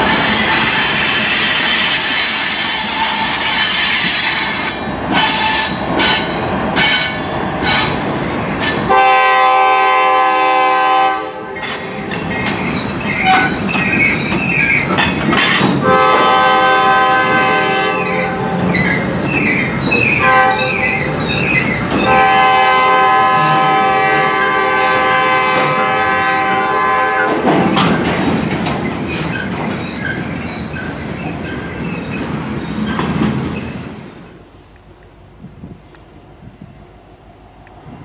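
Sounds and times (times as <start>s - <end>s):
train wheels clickety-clack: 0.0s - 9.2s, 11.5s - 24.3s, 25.0s - 34.0s
locomotive air horn blasts: 8.9s - 12.1s, 15.8s - 18.4s, 20.2s - 20.8s, 22.0s - 27.4s.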